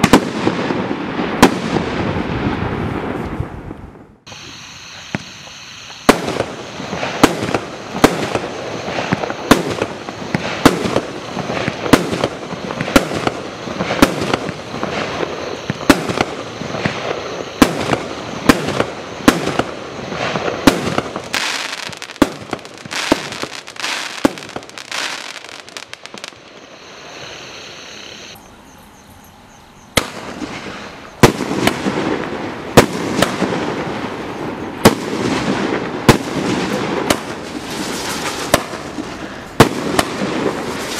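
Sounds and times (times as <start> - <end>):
fireworks banging: 0.0 - 28.4, 30.0 - 40.9
rough firework crackle noise: 0.0 - 28.4, 30.0 - 40.9.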